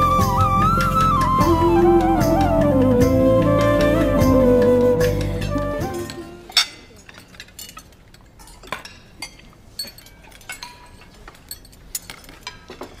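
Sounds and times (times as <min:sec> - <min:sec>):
cutlery and plates clinking: 0:06.0 - 0:13.0.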